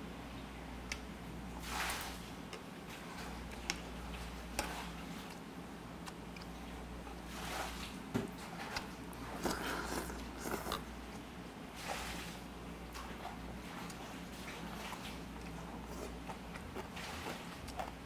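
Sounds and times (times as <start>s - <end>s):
man chewing and slurping soup: 2.4s - 11.4s, 12.8s - 18.0s.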